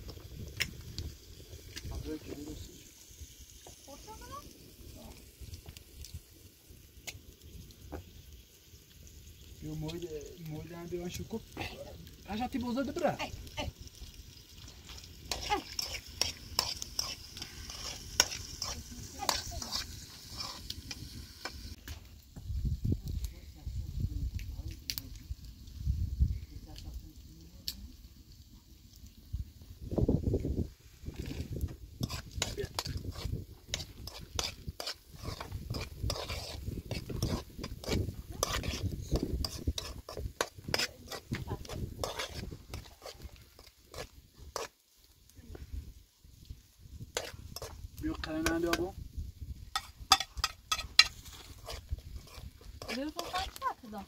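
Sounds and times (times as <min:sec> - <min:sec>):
food sizzling in a pan: 0:00.0 - 0:54.0
utensil stirring and scraping: 0:14.6 - 0:21.8, 0:31.1 - 0:44.8, 0:47.0 - 0:48.9, 0:49.6 - 0:54.0
utensil scraping and tapping pan: 0:15.3 - 0:20.6, 0:49.7 - 0:53.6.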